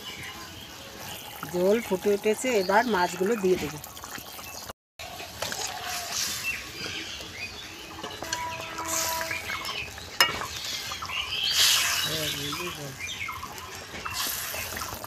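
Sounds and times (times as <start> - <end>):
broth boiling in a metal pan: 0.0 - 15.0
metal ladle stirring: 7.8 - 12.8, 13.4 - 15.0.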